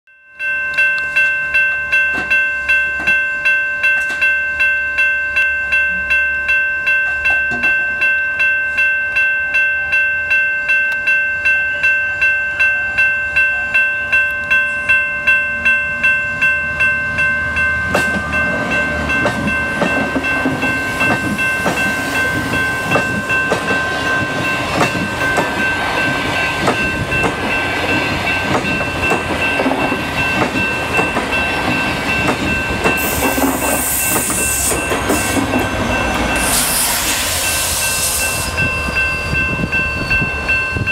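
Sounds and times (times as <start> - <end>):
level crossing bell ringing: 0.1 - 40.9
train passing rumble and clatter: 13.0 - 40.9.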